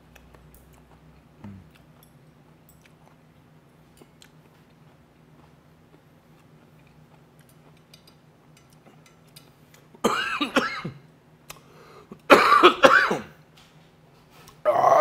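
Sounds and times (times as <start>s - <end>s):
man coughing hard: 10.0s - 11.0s, 12.3s - 13.4s.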